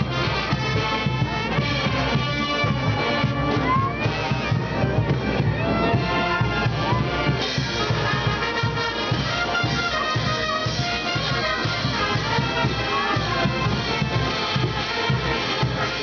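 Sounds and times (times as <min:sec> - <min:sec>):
brass band playing dance music: 0:00.0 - 0:16.0
steady drum beat: 0:00.0 - 0:16.0
trumpets and trombones: 0:00.0 - 0:16.0.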